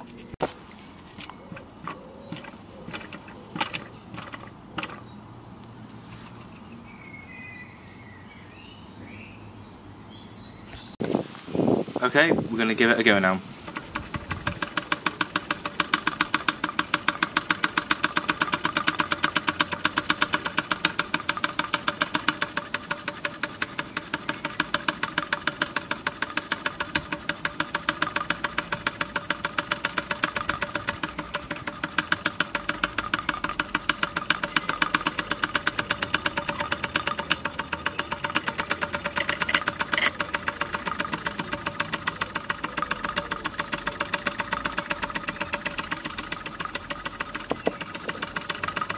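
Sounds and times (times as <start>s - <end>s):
steam engine chuffing: 12.0s - 48.9s.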